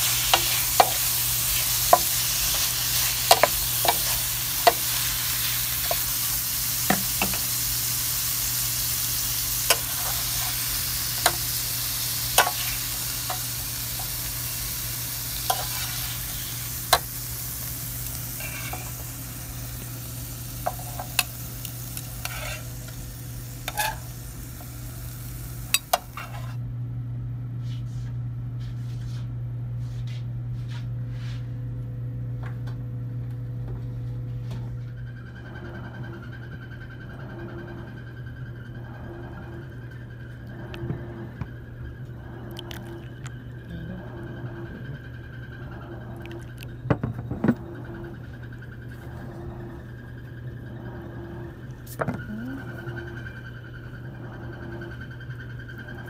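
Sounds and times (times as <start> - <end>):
asparagus sizzling in a pan: 0.0 - 26.6
steady low hum: 0.0 - 56.0
wooden spatula tapping and scraping: 3.2 - 4.9.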